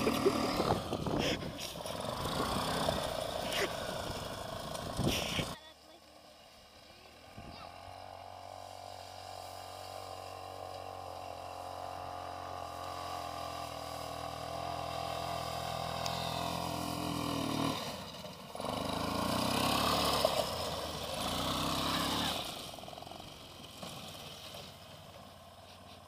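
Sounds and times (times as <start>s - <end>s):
quad bike engine running: 0.0s - 26.0s.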